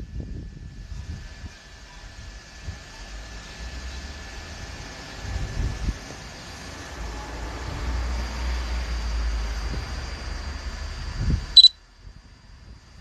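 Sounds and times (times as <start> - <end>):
rushing noise with low rumble: 0.0 - 13.0
high electronic beep: 11.6 - 11.8.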